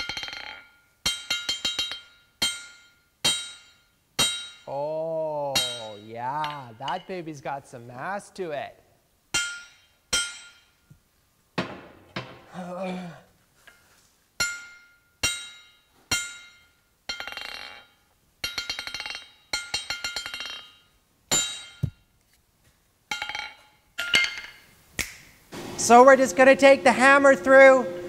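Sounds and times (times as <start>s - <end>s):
hammer striking anvil: 0.0s - 4.7s, 5.5s - 7.1s, 9.4s - 10.8s, 14.4s - 22.0s, 23.1s - 24.6s.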